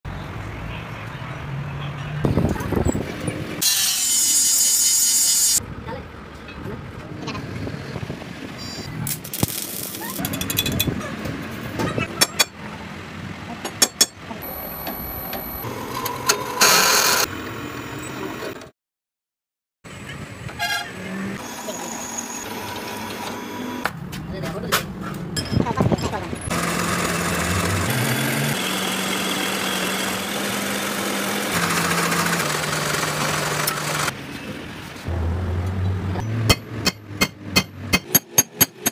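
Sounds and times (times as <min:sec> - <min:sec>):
drill press cutting steel: 0:14.5 - 0:17.3, 0:21.4 - 0:23.9, 0:26.5 - 0:34.1
lathe motor hum: 0:21.4 - 0:23.9, 0:26.5 - 0:34.1
cutting tool hissing on metal: 0:27.9 - 0:34.1.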